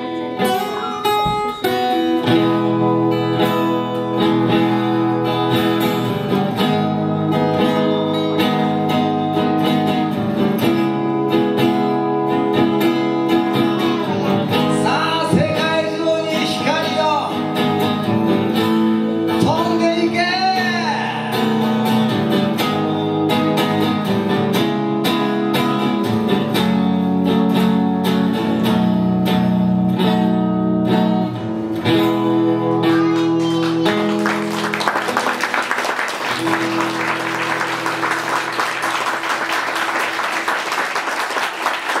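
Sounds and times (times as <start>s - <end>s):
strummed guitar: 0.0s - 42.0s
man singing: 14.5s - 17.5s, 19.3s - 21.7s
audience applause: 32.9s - 42.0s.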